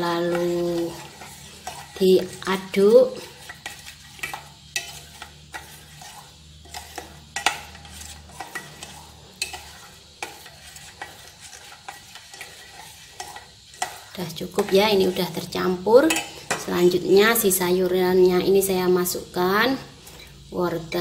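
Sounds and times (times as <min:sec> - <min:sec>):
liquid swishing: 0:00.3 - 0:14.2.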